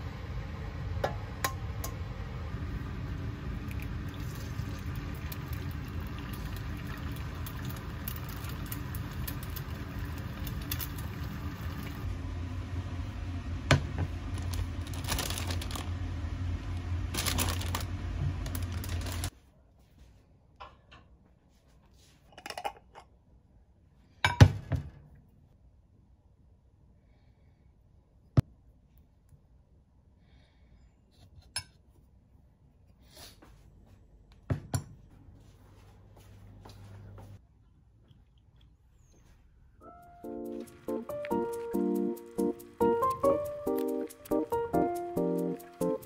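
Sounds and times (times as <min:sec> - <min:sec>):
low hum: 0:00.0 - 0:19.3
egg sizzling in oil: 0:02.6 - 0:12.1.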